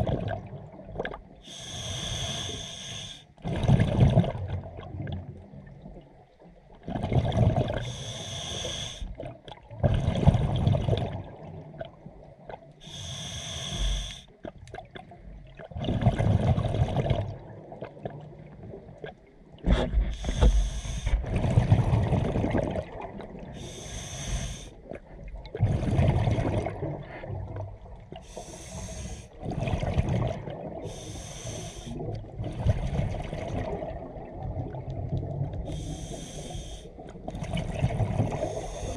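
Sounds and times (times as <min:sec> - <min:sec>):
bubbling rumbles underwater: 0:00.0 - 0:01.3, 0:03.4 - 0:06.0, 0:06.8 - 0:07.9, 0:09.2 - 0:12.4, 0:14.5 - 0:20.4, 0:21.1 - 0:23.6, 0:24.8 - 0:28.3, 0:29.4 - 0:30.9, 0:31.9 - 0:35.9, 0:37.1 - 0:38.8
regulator breath hissing: 0:01.5 - 0:03.3, 0:07.9 - 0:09.1, 0:12.8 - 0:14.3, 0:20.1 - 0:21.2, 0:23.6 - 0:24.8, 0:28.2 - 0:29.3, 0:30.8 - 0:32.0, 0:35.7 - 0:36.9, 0:38.4 - 0:38.9.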